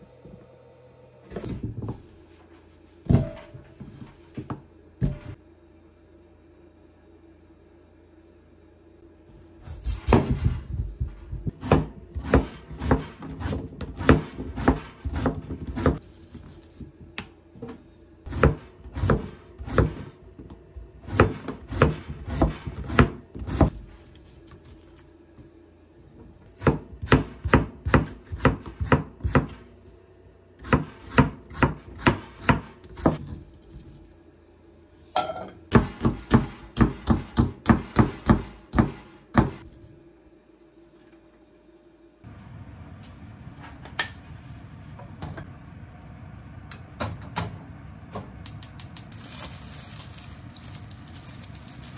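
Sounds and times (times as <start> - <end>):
knife chopping on wooden board: 11.4 - 16.0, 18.3 - 20.1, 21.1 - 23.7, 26.6 - 29.6, 30.6 - 33.2, 35.7 - 39.6.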